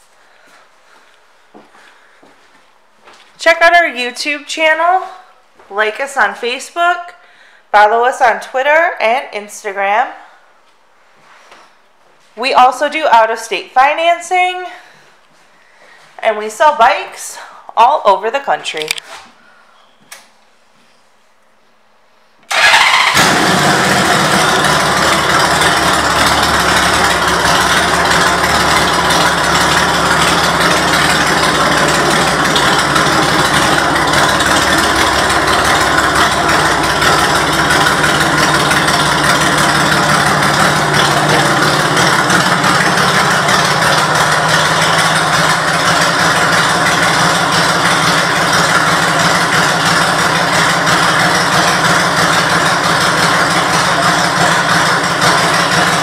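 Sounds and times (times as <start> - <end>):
motorcycle engine starting and idling: 22.5 - 56.0.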